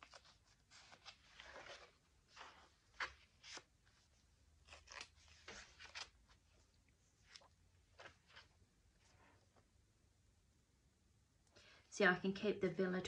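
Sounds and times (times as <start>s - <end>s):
paper pages rustling: 0.0s - 9.4s.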